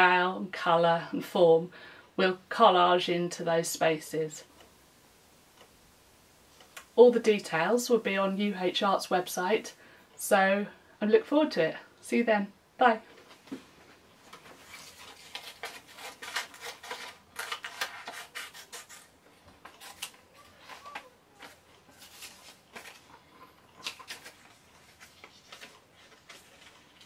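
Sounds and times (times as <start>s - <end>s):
paper rustling and crackling: 13.2s - 27.0s.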